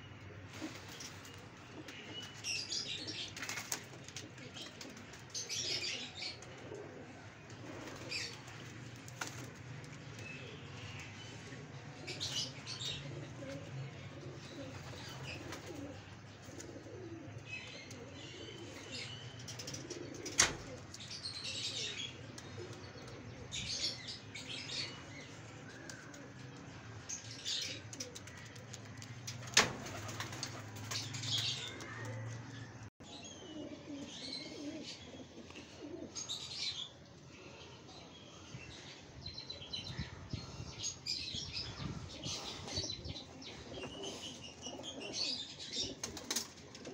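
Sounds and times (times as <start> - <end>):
pigeons cooing: 0.4 - 37.9, 39.8 - 46.9
wing flapping: 28.2 - 31.8.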